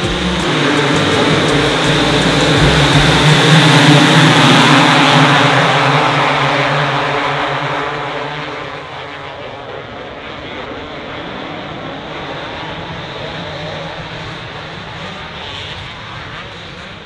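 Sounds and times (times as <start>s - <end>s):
motocross bikes revving: 0.0s - 7.2s.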